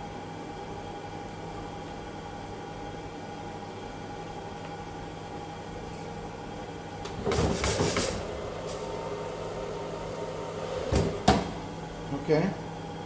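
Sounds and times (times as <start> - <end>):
fan humming: 0.0 - 13.0.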